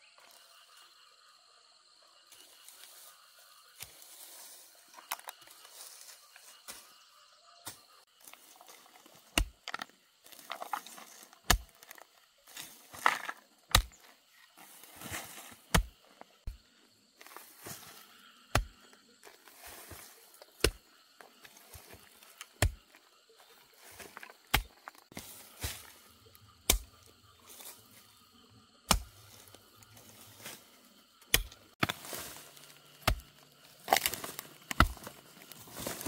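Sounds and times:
blade chopping wood: 9.2s - 9.9s, 11.4s - 12.0s, 12.9s - 14.1s, 15.7s - 16.0s, 18.5s - 18.8s, 20.6s - 20.8s, 21.7s - 23.0s, 23.9s - 25.9s, 26.6s - 27.0s, 28.9s - 29.4s, 31.2s - 36.0s.

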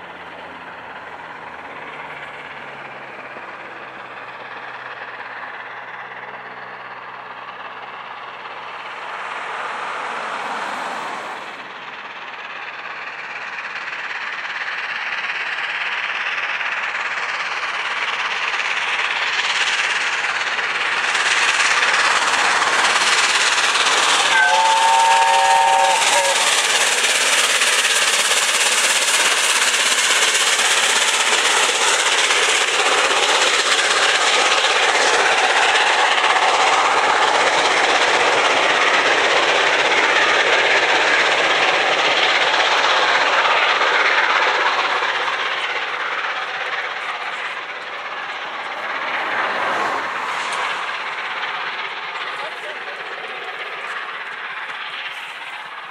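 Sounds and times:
steam locomotive exhaust: 0.0s - 55.9s
train wheels on rails: 0.0s - 55.9s
steam whistle chord: 24.3s - 26.6s.

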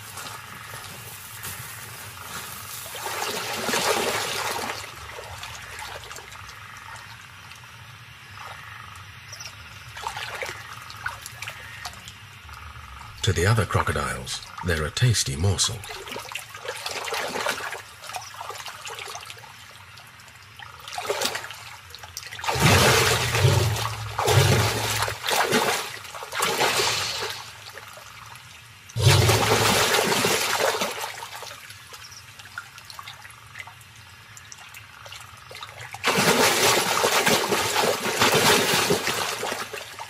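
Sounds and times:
water trickling: 0.0s - 40.0s
crocodiles thrashing in water: 2.8s - 6.2s, 22.3s - 27.8s, 29.0s - 31.6s, 35.9s - 40.0s.

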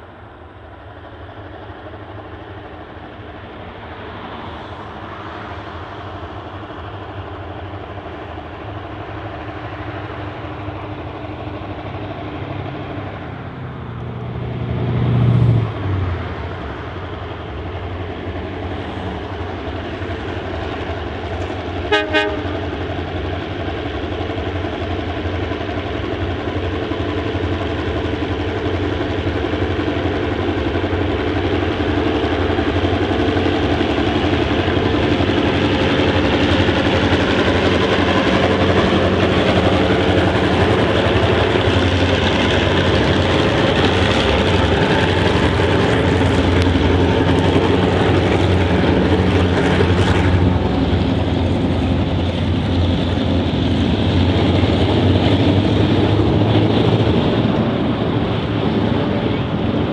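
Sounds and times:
diesel locomotives droning: 0.0s - 59.9s
short train horn toots: 21.9s - 22.6s.

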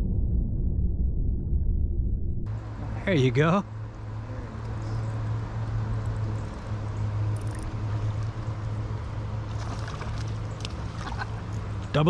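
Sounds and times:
low rumble: 0.0s - 3.0s.

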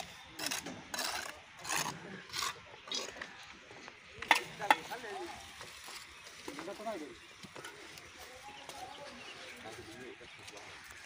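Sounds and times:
footsteps crunching on stones: 3.2s - 11.0s.

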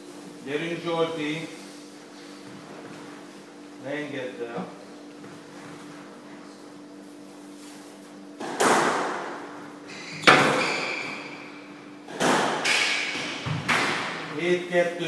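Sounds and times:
squash ball smacks echoing: 8.4s - 9.4s, 10.2s - 11.4s, 12.1s - 14.3s.

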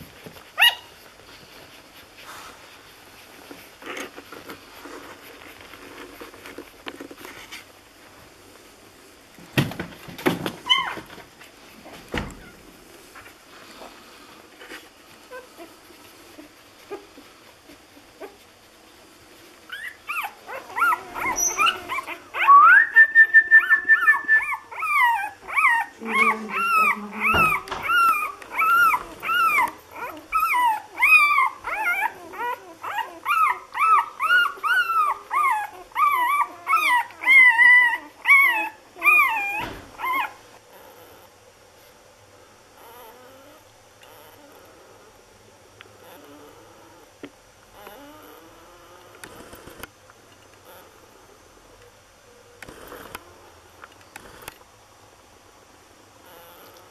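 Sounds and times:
puppy squealing: 0.6s - 0.9s, 10.6s - 11.0s, 19.7s - 41.3s
puppies whimpering: 10.6s - 11.0s, 19.7s - 41.3s.

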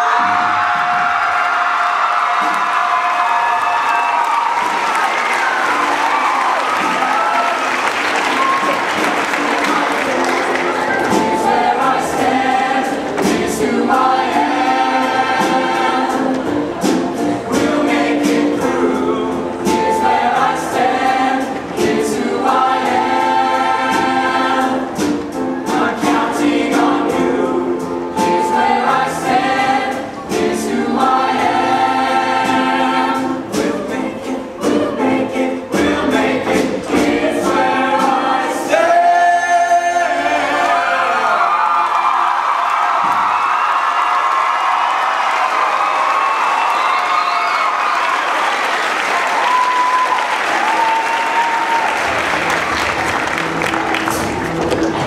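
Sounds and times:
choir singing in harmony: 4.5s - 53.6s
accompaniment with steady beat: 6.7s - 39.0s.

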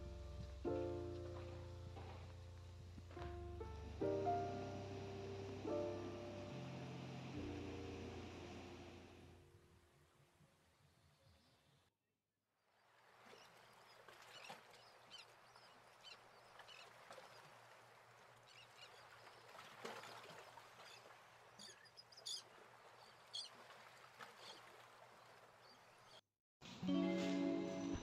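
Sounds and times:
soft outdoor hiss: 0.0s - 11.8s.

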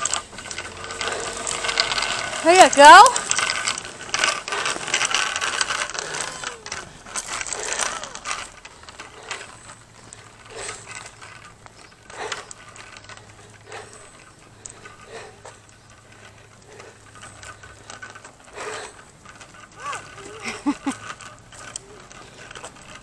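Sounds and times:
bicycle wheels rattling on concrete: 0.0s - 23.0s.

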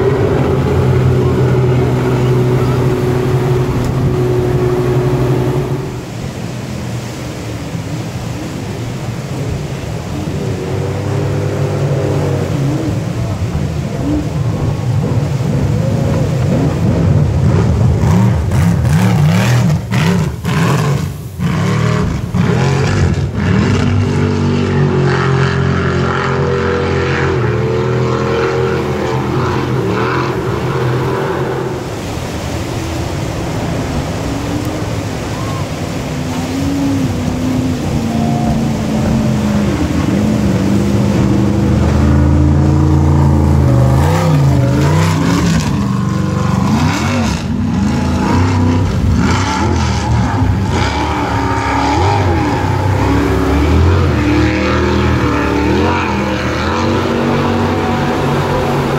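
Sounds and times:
jet boat engines revving: 0.0s - 58.9s
whitewater rushing: 0.0s - 58.9s.

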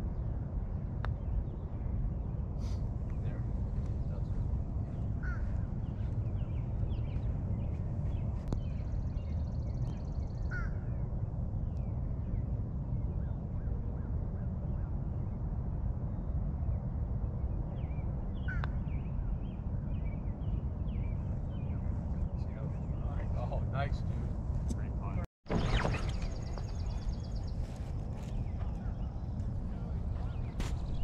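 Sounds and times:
steady low rumble: 0.0s - 31.0s
birds chirping: 2.4s - 12.4s, 17.6s - 31.0s.

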